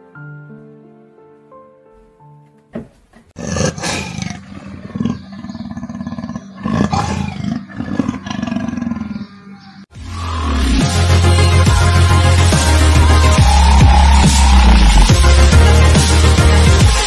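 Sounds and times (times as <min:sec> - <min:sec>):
big cat growling and roaring: 0:03.4 - 0:09.5.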